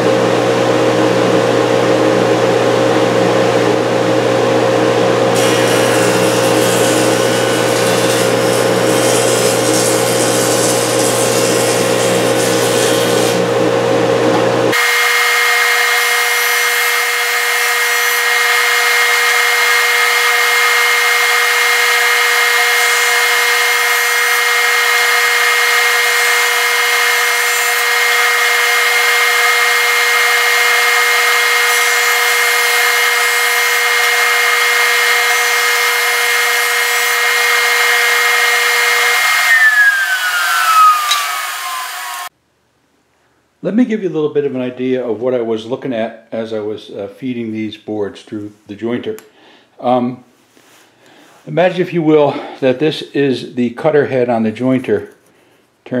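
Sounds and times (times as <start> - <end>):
jointer machine whine: 0.0 - 42.3
hiss of cutting wood: 5.4 - 13.5, 14.8 - 42.3.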